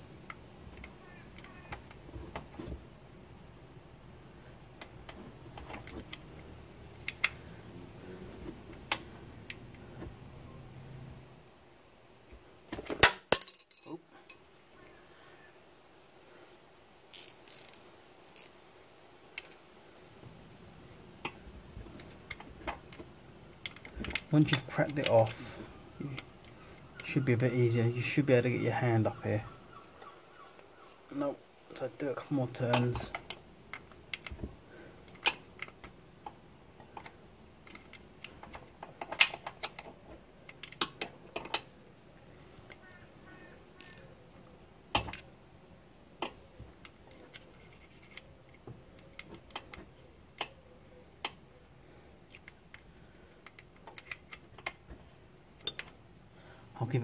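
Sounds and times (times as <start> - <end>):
spanner clicking on metal bolt: 17.1 - 17.8, 43.8 - 44.0
handling rustle: 46.4 - 50.4.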